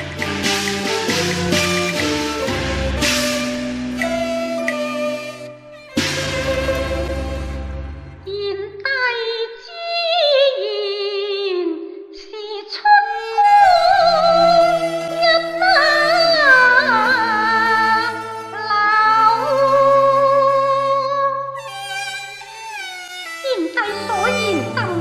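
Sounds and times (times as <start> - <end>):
instrumental accompaniment: 0.0 - 8.4, 13.2 - 25.0
woman singing with vibrato: 8.3 - 21.6, 23.5 - 25.0.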